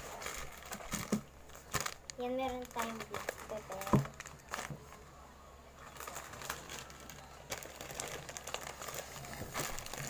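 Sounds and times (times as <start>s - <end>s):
plastic packets crinkling: 0.0s - 5.0s, 5.8s - 10.0s.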